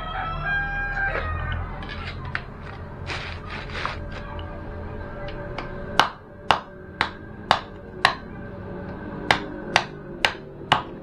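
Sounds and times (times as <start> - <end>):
knife chopping on wooden block: 5.6 - 8.2, 9.3 - 11.0.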